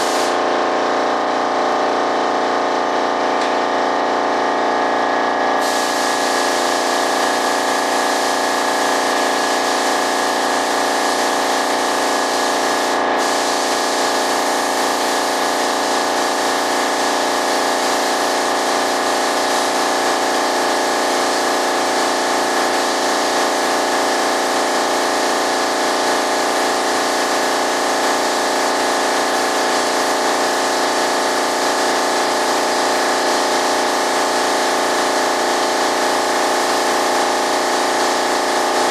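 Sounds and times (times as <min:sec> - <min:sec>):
spray gun hissing: 0:00.0 - 0:00.8, 0:05.6 - 0:38.9
air compressor running: 0:00.0 - 0:38.9.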